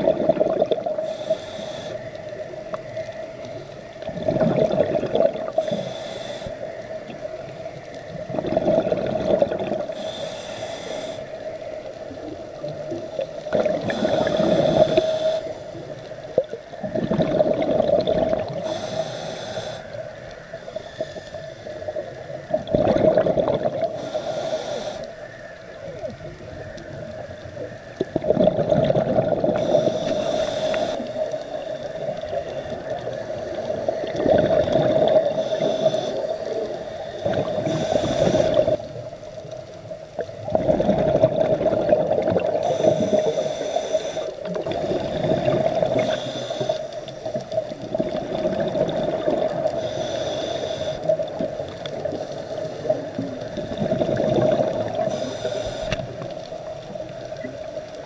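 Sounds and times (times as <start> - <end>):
exhaled bubbling underwater: 0.0 - 58.0
regulator inhale hiss: 0.9 - 4.0, 5.5 - 8.1, 9.8 - 12.3, 12.9 - 16.4, 18.5 - 22.5, 23.8 - 26.1, 29.4 - 39.8, 42.6 - 47.8, 49.5 - 53.8, 54.6 - 56.7.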